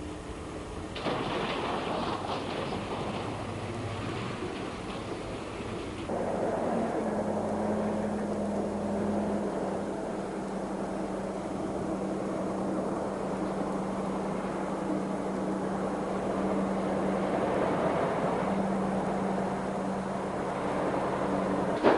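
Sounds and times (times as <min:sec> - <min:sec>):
diesel engine humming: 0:00.0 - 0:21.9.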